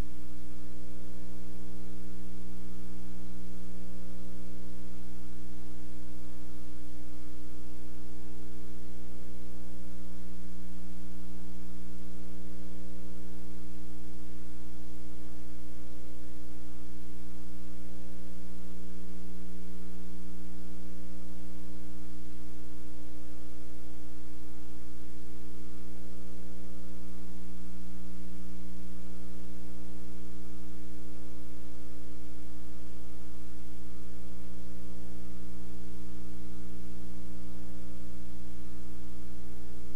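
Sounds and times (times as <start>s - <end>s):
electrical mains hum: 0.0s - 39.9s
soft hiss: 0.0s - 39.9s.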